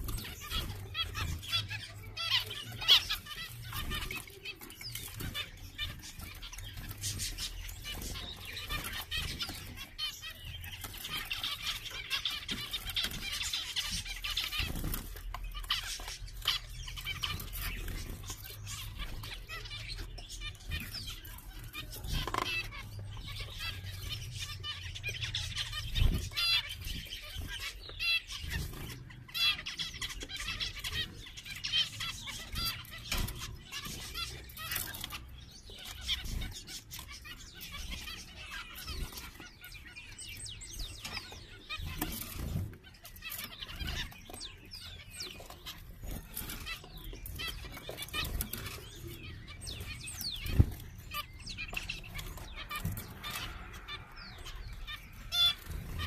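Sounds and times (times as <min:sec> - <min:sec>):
finches chirping: 0:00.0 - 0:56.0.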